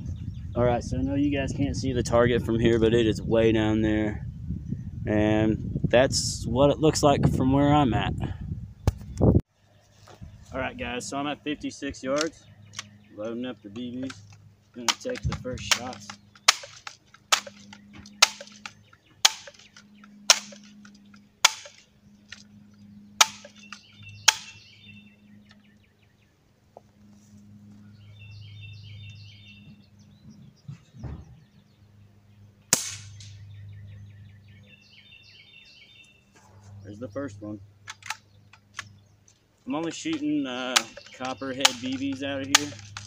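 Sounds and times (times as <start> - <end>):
air gun shot: 32.7 - 33.4.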